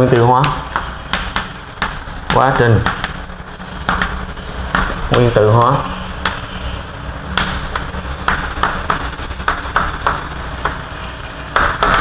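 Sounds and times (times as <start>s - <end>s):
low hum: 0.0s - 12.0s
chalk tapping and scratching: 0.3s - 3.2s, 3.8s - 5.4s, 7.3s - 12.0s.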